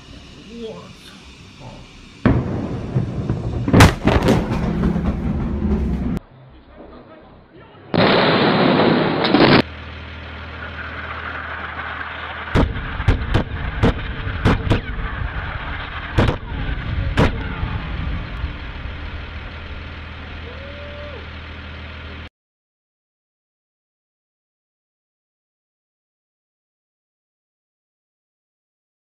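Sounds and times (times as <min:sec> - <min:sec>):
low hum: 0:00.0 - 0:22.3
loud explosion blast: 0:02.2 - 0:06.2, 0:07.9 - 0:09.7, 0:12.5 - 0:19.9
sharp detonation cracks: 0:02.2 - 0:06.2, 0:08.0 - 0:09.7, 0:10.6 - 0:20.1.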